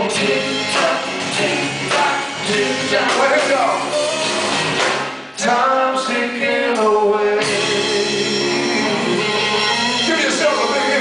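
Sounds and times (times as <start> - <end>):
rock band playing: 0.0 - 5.4, 7.4 - 11.0
man singing long notes: 6.7 - 11.0.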